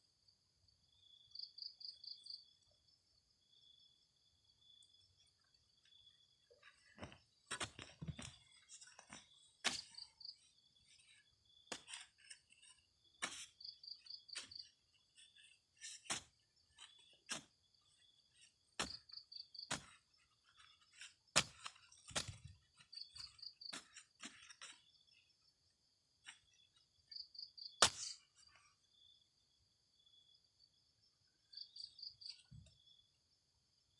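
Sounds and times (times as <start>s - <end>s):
spade scraping soil: 6.0s - 25.4s, 26.2s - 28.7s
spade thudding into dry soil: 6.6s - 25.0s, 27.8s - 28.4s.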